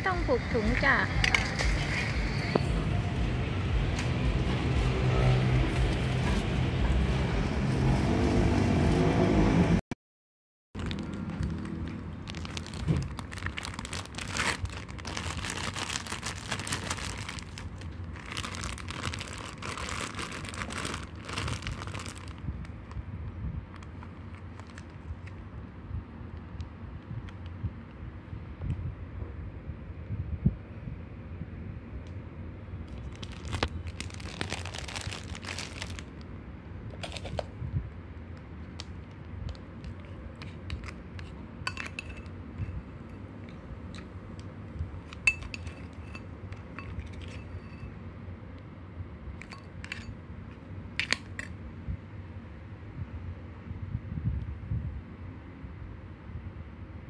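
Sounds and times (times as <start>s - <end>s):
steady low rumble: 0.0s - 9.8s, 10.8s - 57.0s
plastic bag crinkling: 10.8s - 22.4s, 23.7s - 25.3s, 32.9s - 36.2s, 37.0s - 37.5s
bowl clicks and clinks: 40.4s - 42.3s, 45.1s - 47.9s, 49.4s - 50.1s.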